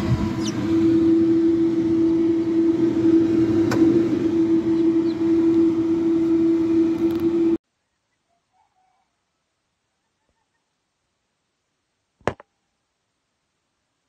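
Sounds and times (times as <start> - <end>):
steady mechanical hum: 0.0 - 7.6.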